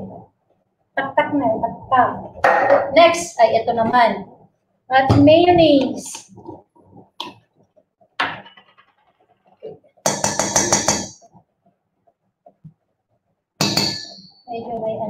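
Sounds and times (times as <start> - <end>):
spoon knock: 10.1 - 11.2.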